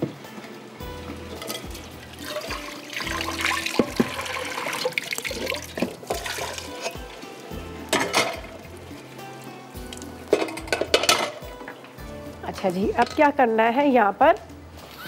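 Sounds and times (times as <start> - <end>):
water pouring and splashing: 1.0 - 11.8.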